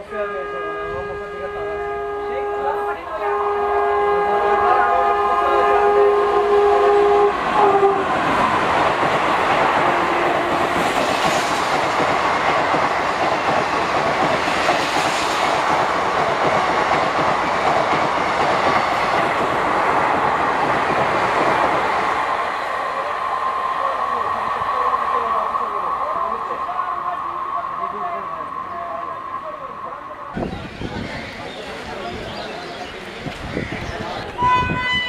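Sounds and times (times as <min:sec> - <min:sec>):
locomotive horn: 0:00.0 - 0:08.2, 0:09.8 - 0:10.8, 0:34.4 - 0:35.0
train wheels on rail: 0:04.1 - 0:27.6, 0:30.3 - 0:35.0.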